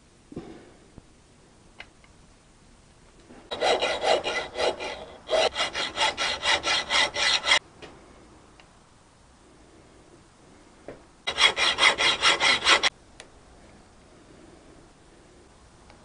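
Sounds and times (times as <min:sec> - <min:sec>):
hacksaw scraping on metal: 0:03.5 - 0:07.6, 0:11.3 - 0:12.9.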